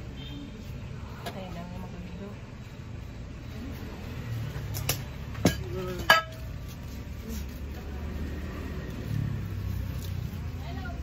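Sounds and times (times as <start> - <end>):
dishes clinking: 5.4 - 6.4.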